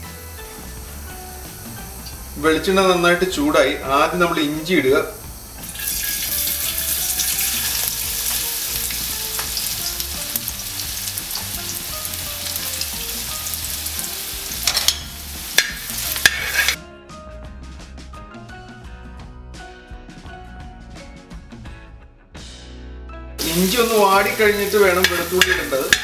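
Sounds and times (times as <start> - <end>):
ginger sizzling in hot oil: 0.0 - 16.8, 23.4 - 26.0
metal spoon scraping a pan: 14.6 - 16.8, 24.8 - 26.0.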